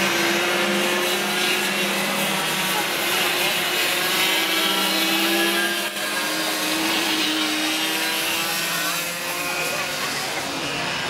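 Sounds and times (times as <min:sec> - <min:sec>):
go-kart engines buzzing: 0:00.0 - 0:11.0.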